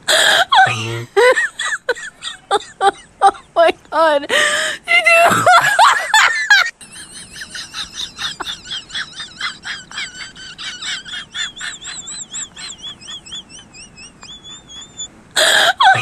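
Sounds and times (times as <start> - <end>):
kittens squeaking: 7.5 - 16.0
loud wailing cry: 8.3 - 16.0.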